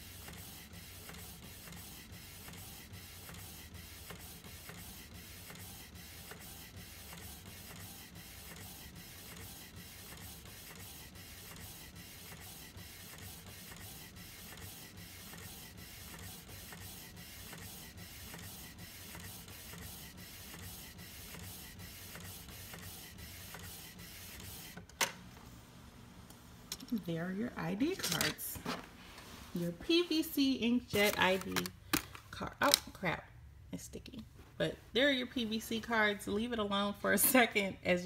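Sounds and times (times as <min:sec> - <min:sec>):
inkjet printer whirring: 0:00.0 - 0:24.8.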